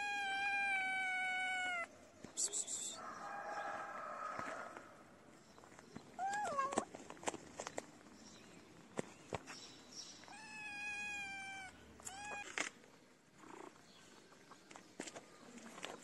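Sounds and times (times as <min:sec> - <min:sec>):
cat meowing: 0:00.0 - 0:01.9, 0:06.2 - 0:06.8, 0:10.3 - 0:12.6.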